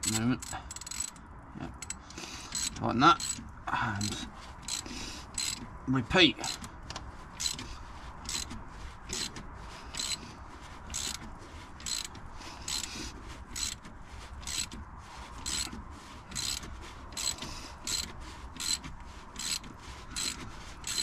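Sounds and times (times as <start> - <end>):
socket ratchet clicking: 0.0 - 1.2, 1.8 - 3.4, 4.6 - 5.7, 7.4 - 7.6, 8.3 - 9.4, 10.0 - 10.2, 10.9 - 11.2, 11.8 - 12.9, 13.6 - 13.8, 14.4 - 14.8, 15.4 - 21.0.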